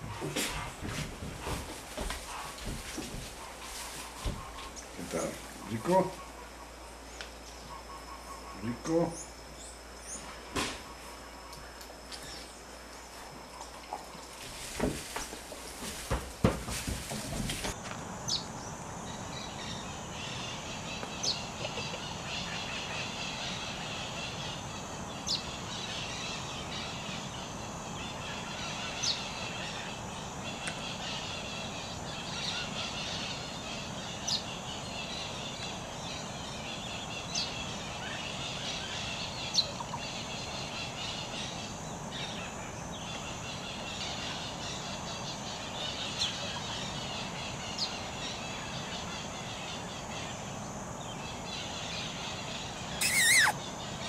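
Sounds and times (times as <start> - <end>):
insect and bird chorus: 0.0 - 54.0
short rising chirp: 53.0 - 53.6.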